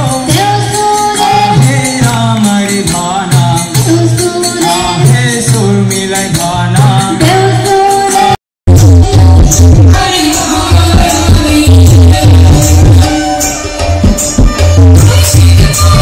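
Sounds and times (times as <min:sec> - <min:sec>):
jingling percussion: 0:00.0 - 0:08.4, 0:09.0 - 0:16.0
drum beat: 0:08.7 - 0:16.0.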